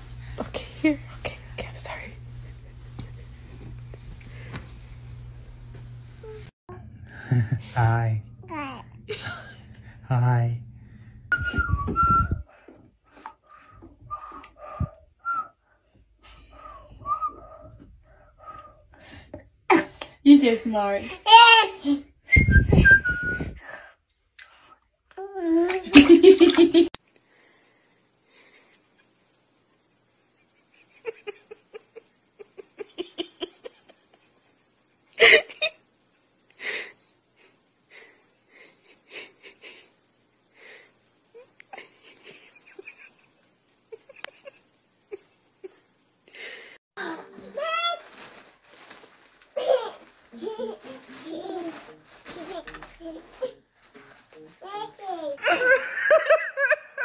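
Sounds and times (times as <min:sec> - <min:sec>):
person laughing with a wheeze: 0:30.5 - 0:34.6, 0:35.2 - 0:35.8, 0:41.4 - 0:45.8.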